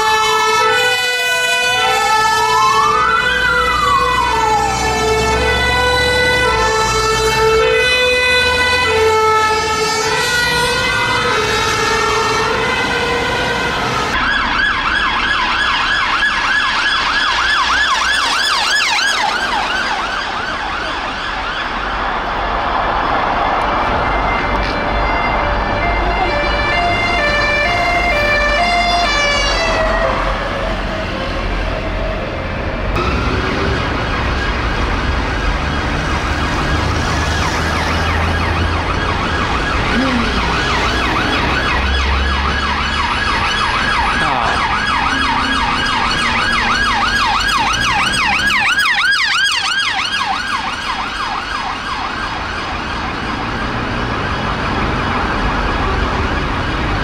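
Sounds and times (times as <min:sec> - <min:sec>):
siren wailing and yelping: 0:00.0 - 0:21.8, 0:36.5 - 0:57.0
police car siren: 0:00.0 - 0:57.0
road noise: 0:00.0 - 0:57.0.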